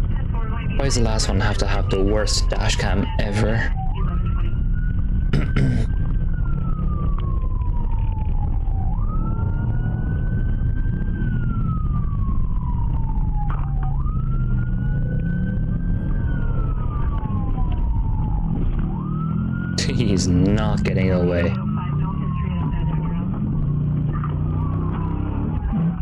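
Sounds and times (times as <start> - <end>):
steady low rumble: 0.0 - 19.1
police siren wailing: 0.0 - 26.0.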